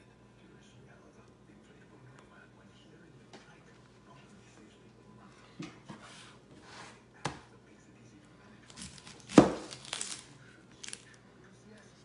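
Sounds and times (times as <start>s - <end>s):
knife cutting onion: 8.7s - 10.2s.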